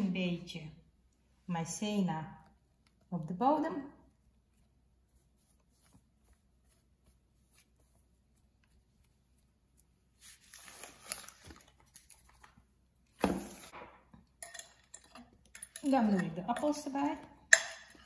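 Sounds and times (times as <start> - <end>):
soft handling rustling: 4.1 - 13.7.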